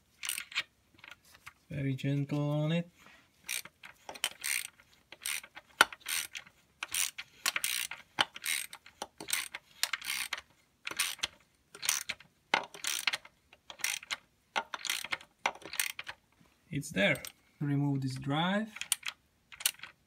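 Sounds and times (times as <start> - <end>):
hand ratchet clicking: 0.2 - 1.2, 3.5 - 16.2, 18.8 - 20.0.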